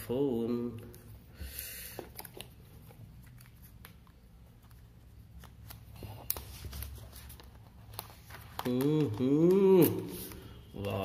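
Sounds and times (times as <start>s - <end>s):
smartphone in plastic wrap rustling: 2.0s - 10.4s.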